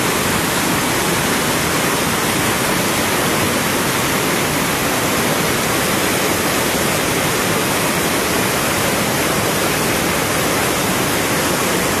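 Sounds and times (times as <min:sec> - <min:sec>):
river rapids roaring: 0:00.0 - 0:12.0.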